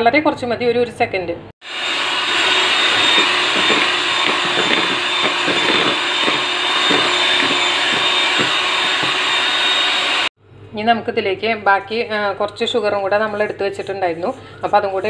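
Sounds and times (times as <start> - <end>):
electric hand mixer whining: 1.6 - 10.3.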